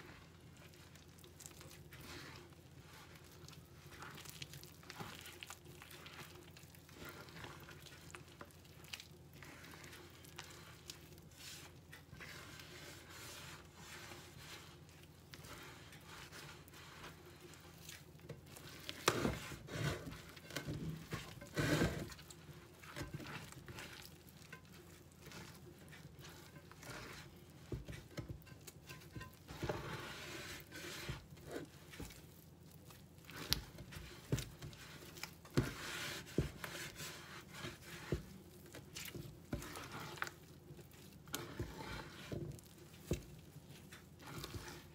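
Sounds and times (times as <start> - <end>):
dough squishing and rubbing: 0.0 - 44.9.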